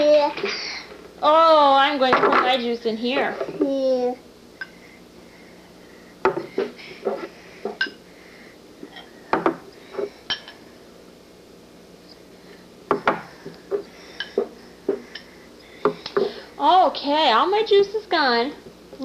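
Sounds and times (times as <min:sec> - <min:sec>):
glass and cups clinking: 0:07.7 - 0:08.0, 0:10.3 - 0:10.6.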